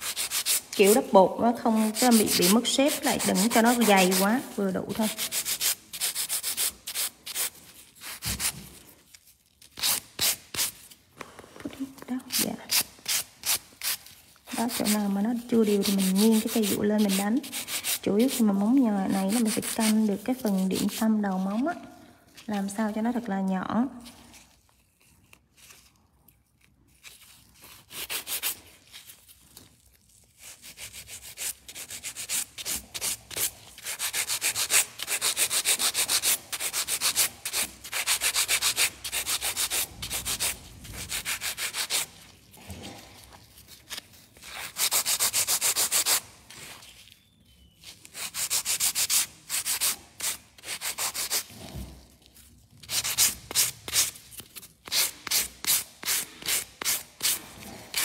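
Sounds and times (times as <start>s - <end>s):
nail file rasping on nail: 0.0s - 1.0s, 1.7s - 8.5s, 12.7s - 21.2s, 27.6s - 28.6s, 30.4s - 42.2s, 44.4s - 46.2s, 48.1s - 51.7s, 52.8s - 58.0s.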